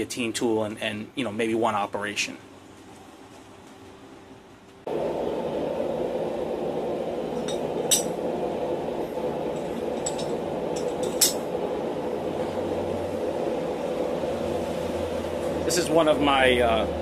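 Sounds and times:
forge rushing noise: 0:04.9 - 0:17.0.

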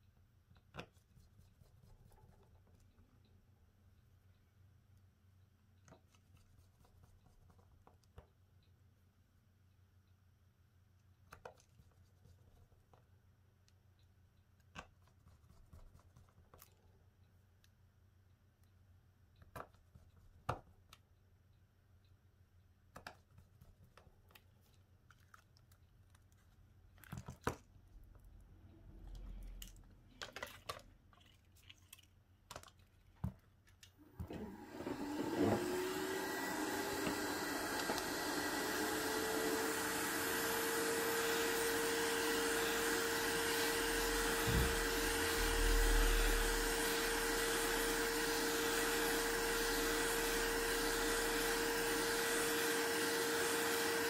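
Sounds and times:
hot-air blower running: 0:34.0 - 0:54.0.

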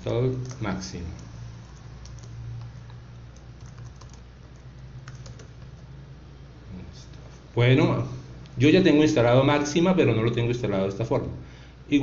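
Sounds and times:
steady low hum: 0:00.0 - 0:12.0
keyboard keystrokes: 0:03.6 - 0:05.8.

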